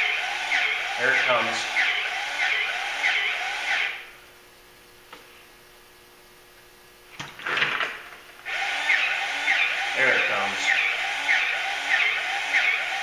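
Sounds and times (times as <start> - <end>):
faint steady hum: 3.2 - 8.5.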